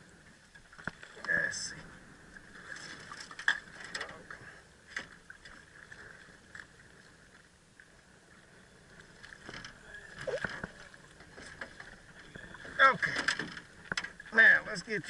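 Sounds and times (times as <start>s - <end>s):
fish splashing and thrashing: 9.2s - 14.3s.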